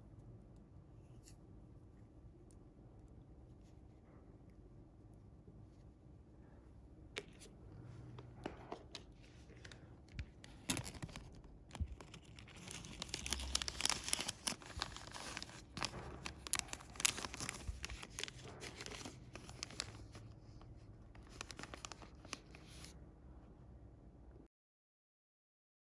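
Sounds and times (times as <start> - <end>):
plastic bag crinkling: 8.4 - 22.9.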